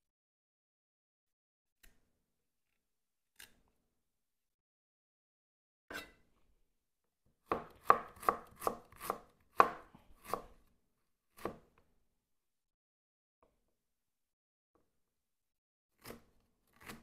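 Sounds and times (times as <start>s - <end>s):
knife chopping on wooden board: 7.5s - 10.6s, 11.4s - 11.7s, 16.0s - 17.0s.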